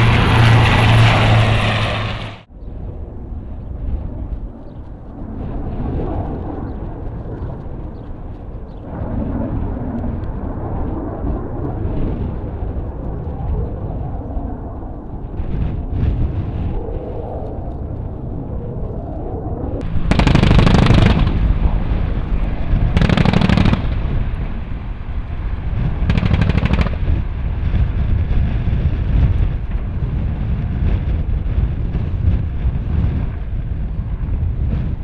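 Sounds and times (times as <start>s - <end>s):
helicopter flying past: 0.0s - 35.0s
rapid automatic gunfire: 20.1s - 21.4s, 23.0s - 23.9s, 26.1s - 27.2s.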